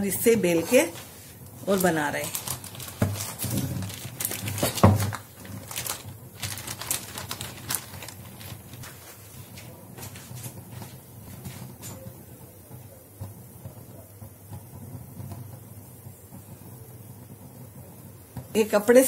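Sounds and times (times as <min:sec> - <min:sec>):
plastic bag crinkling: 0:00.5 - 0:10.2.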